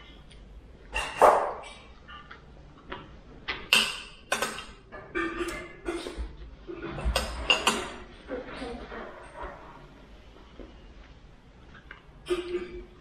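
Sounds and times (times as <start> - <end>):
cutlery clinking against dishes: 3.5 - 6.2, 6.8 - 8.1.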